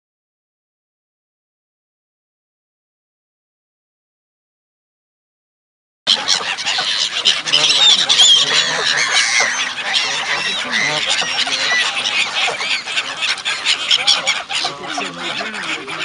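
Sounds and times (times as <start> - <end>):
geese honking: 6.1 - 16.0
gulls crying: 6.1 - 16.0.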